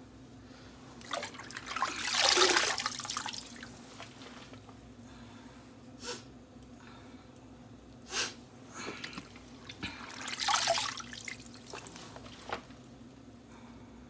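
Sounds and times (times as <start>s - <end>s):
water splashing and dripping into sink: 1.0s - 3.7s, 9.0s - 12.0s.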